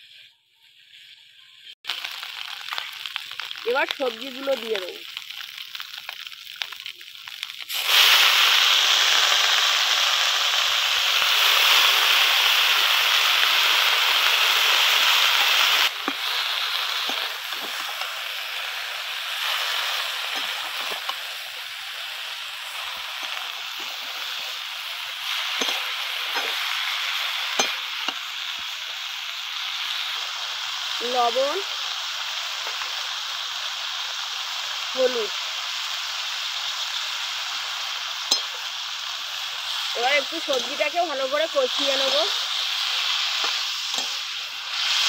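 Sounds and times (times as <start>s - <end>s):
vegetables sizzling in hot oil: 0.0s - 45.0s.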